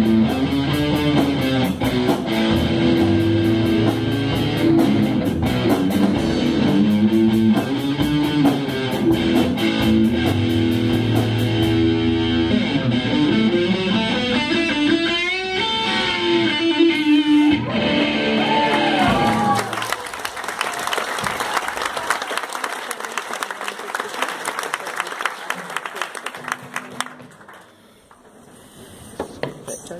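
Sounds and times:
live rock band playing: 0.0s - 19.6s
audience applauding: 17.7s - 28.5s.

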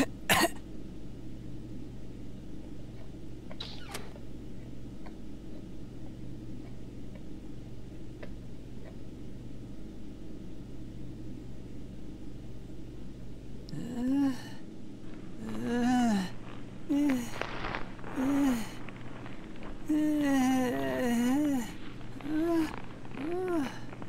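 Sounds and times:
low background hum: 0.0s - 24.0s.

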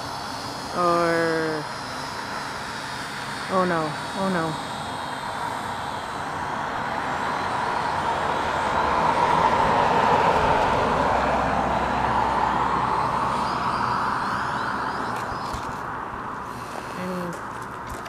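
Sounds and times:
vehicle driving past: 5.8s - 16.8s.

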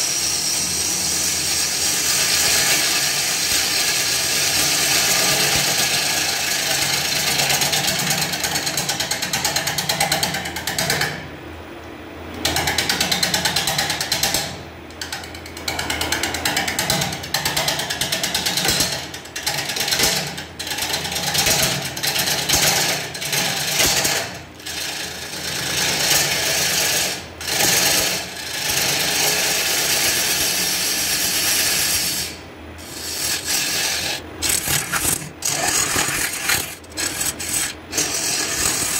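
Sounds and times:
lathe low hum: 24.6s - 38.9s
lathe tool cutting wood: 24.6s - 38.9s.

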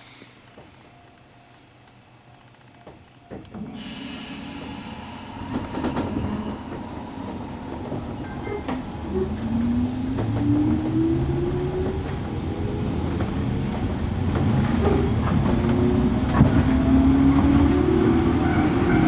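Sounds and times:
train traction motors whining: 0.0s - 19.0s
low running rumble: 3.5s - 17.1s.

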